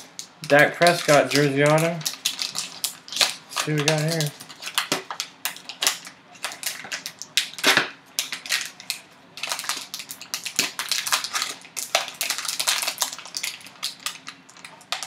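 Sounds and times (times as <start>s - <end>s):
foil wrapper tearing and crinkling: 0.4s - 15.0s.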